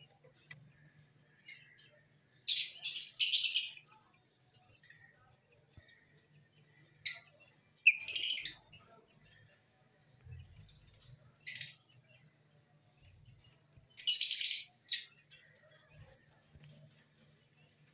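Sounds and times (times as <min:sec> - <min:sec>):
birds chirping: 0:00.0 - 0:17.9.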